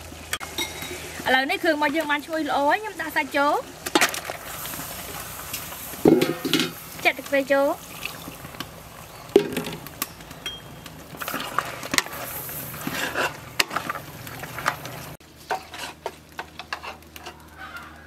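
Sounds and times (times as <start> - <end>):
metal ladle scraping metal pot: 5.5 - 6.8, 11.1 - 17.5.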